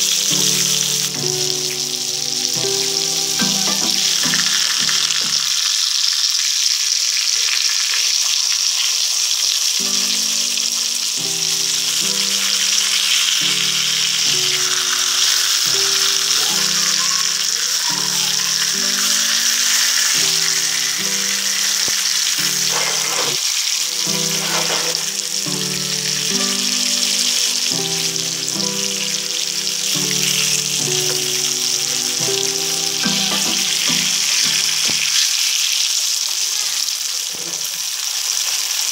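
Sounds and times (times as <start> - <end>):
faint simple melody: 0.0 - 5.6, 9.6 - 35.2
fish sizzling in hot oil: 0.0 - 38.9
metal spatula scraping pan: 22.6 - 23.4, 24.2 - 25.2.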